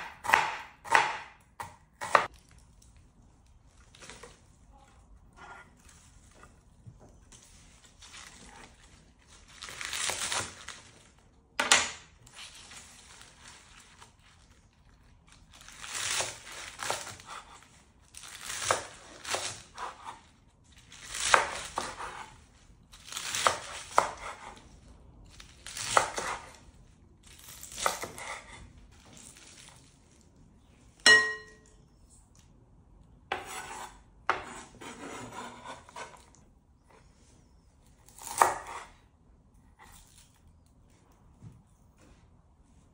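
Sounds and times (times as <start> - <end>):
utensils scraping a dish: 33.3 - 36.2.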